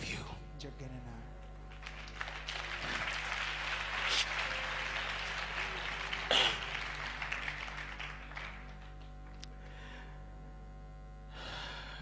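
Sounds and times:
faint hum with soft tones: 0.0s - 12.0s
congregation applause: 1.7s - 9.4s.

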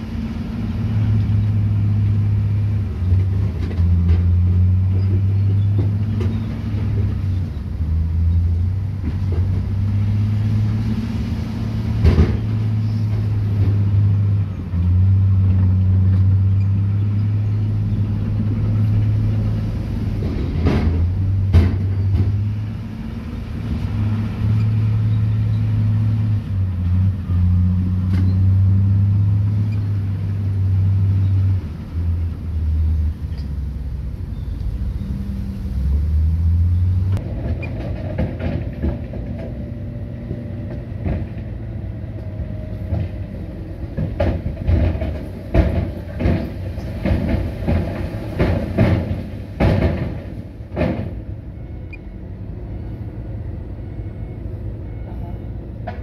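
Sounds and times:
heavy diesel engine: 0.0s - 56.0s
sharp knocks and clatter: 11.9s - 13.9s, 20.2s - 22.6s, 37.2s - 41.6s, 42.8s - 51.3s.

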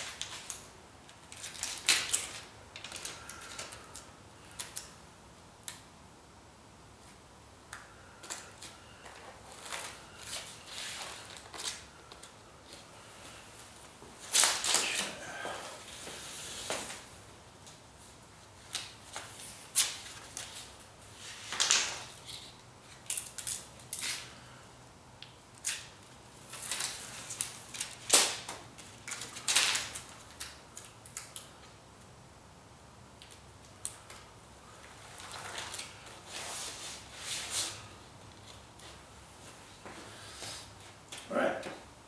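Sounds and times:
foil tape crackling and ripping: 0.0s - 5.0s, 8.2s - 12.8s, 14.2s - 15.1s, 18.6s - 24.4s, 25.2s - 31.6s, 33.2s - 37.8s.

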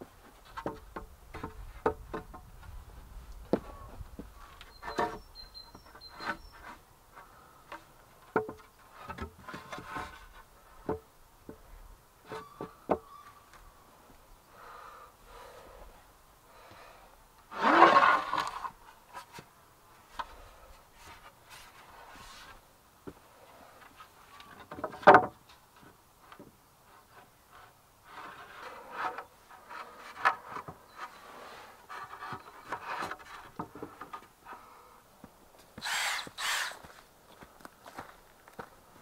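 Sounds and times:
wood scraping on wood: 4.2s - 11.6s, 17.5s - 19.5s, 23.8s - 34.7s, 35.8s - 37.0s.

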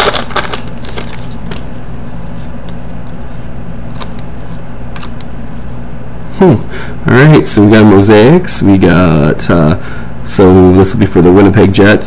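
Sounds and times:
cards flipping and sliding: 0.0s - 5.3s
steady low hum: 0.0s - 12.0s.

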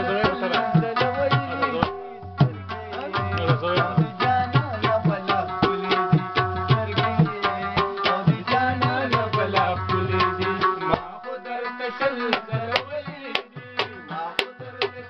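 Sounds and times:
tabla rhythm: 0.0s - 15.0s.

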